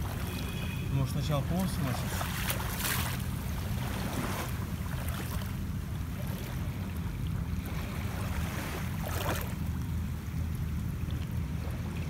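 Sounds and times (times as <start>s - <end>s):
sea water moving: 0.0s - 12.0s
water splash: 0.0s - 12.0s
wind rumble on microphone: 1.4s - 12.0s.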